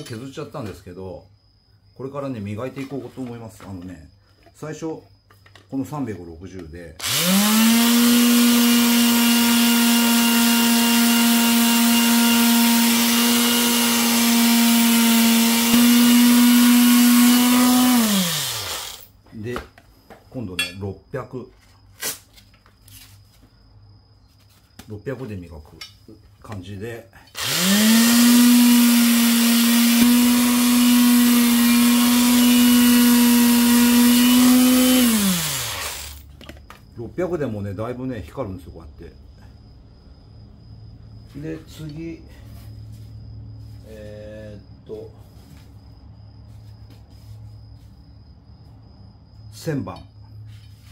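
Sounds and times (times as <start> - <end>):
electric power tool motor: 7.0 - 19.1, 27.4 - 36.2
lathe motor running: 27.4 - 36.1.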